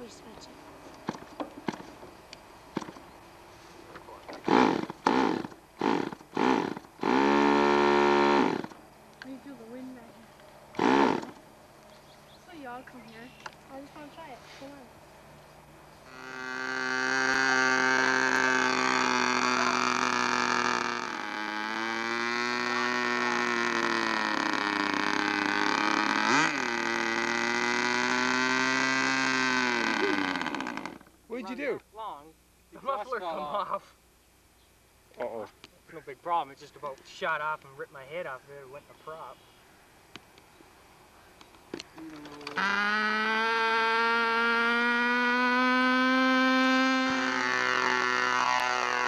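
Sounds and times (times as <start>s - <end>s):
electric starter whirring: 4.3s - 8.8s, 10.7s - 11.5s, 16.0s - 31.2s, 41.5s - 49.0s
model airplane engine buzzing: 4.3s - 8.8s, 10.7s - 11.4s, 16.0s - 31.2s, 41.4s - 49.0s.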